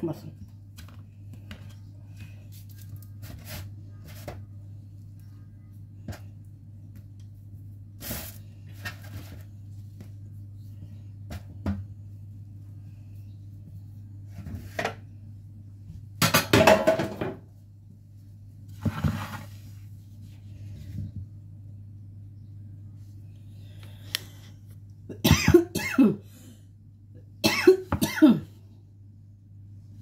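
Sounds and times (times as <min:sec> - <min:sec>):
steady low hum: 0:00.0 - 0:30.0
kitchenware clatter: 0:16.2 - 0:17.4
kitchenware knocks and clinks: 0:16.2 - 0:17.4.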